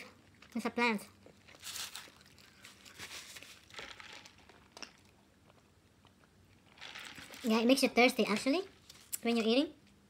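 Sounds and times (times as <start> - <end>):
paper wrappers crinkling: 1.4 - 5.0, 6.7 - 7.6.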